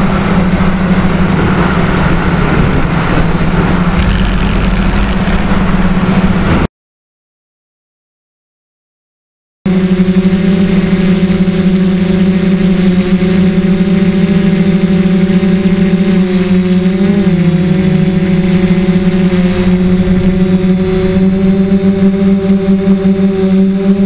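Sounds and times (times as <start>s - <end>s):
drone motors whining: 3.8s - 5.9s, 9.7s - 24.0s.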